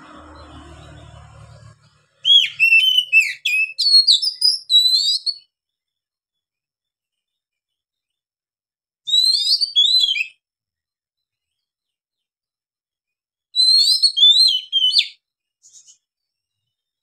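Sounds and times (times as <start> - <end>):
bird singing whistled notes: 2.2 - 5.5, 9.1 - 10.4, 13.6 - 16.0.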